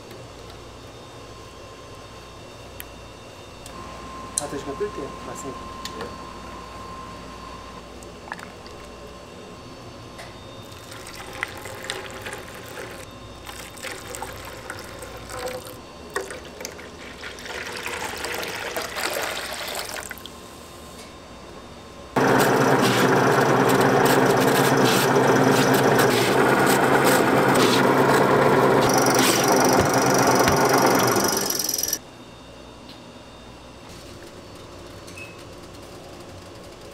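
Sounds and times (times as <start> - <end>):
electric shredder running: 22.2 - 32.0.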